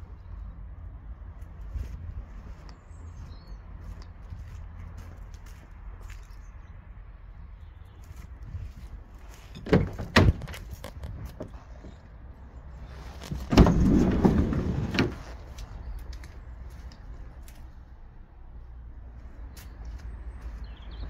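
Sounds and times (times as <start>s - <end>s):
sliding door rolling open: 13.4s - 15.4s.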